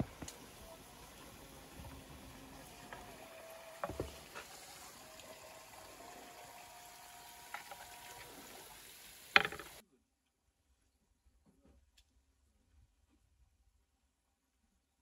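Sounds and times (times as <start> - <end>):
faint steady hiss: 0.0 - 9.8
metal skewers knocking on wood: 9.3 - 9.8.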